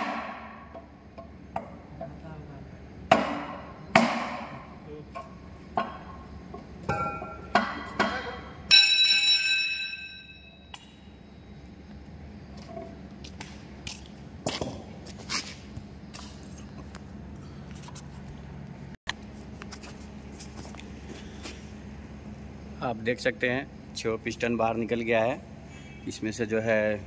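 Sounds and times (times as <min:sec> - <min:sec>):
sledgehammer striking metal: 0:00.0 - 0:00.9, 0:03.1 - 0:04.7.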